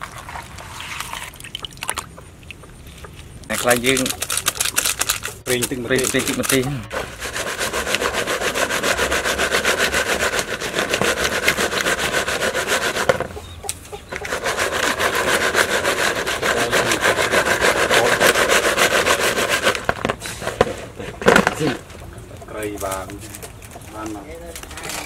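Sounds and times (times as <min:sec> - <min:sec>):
insects rattling in plastic bowl: 0:03.5 - 0:06.7.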